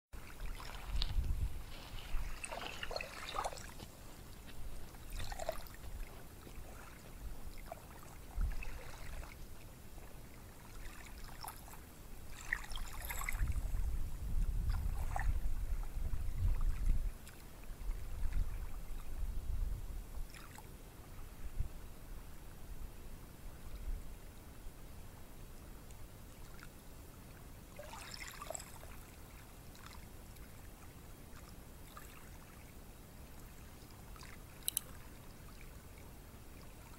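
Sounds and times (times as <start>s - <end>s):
small waves washing onto beach: 0.2s - 13.9s.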